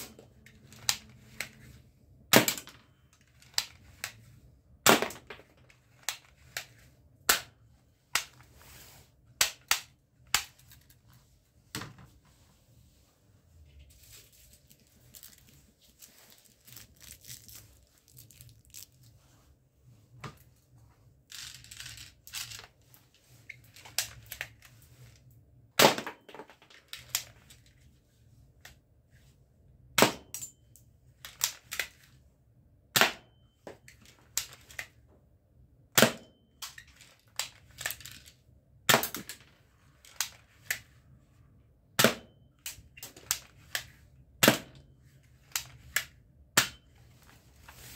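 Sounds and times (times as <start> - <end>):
pellets rattling: 13.9 - 19.1.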